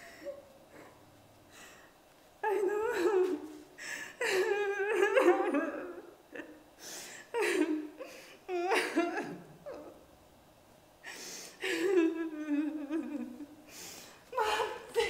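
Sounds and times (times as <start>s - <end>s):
woman's wavering wordless vocals: 2.4s - 3.6s, 4.2s - 6.2s, 14.3s - 15.0s.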